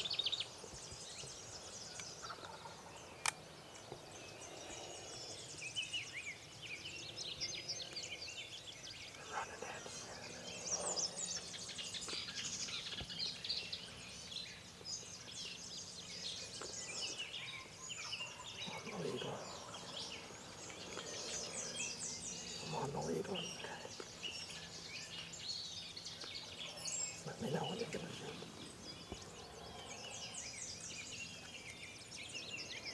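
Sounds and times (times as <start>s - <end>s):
songbirds chirping and trilling: 0.0s - 32.9s
sharp click: 3.2s - 3.8s.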